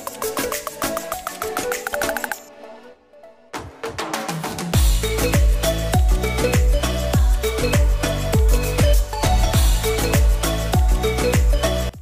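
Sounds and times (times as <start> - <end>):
upbeat music with deep beat: 0.0 - 2.5, 3.6 - 12.0.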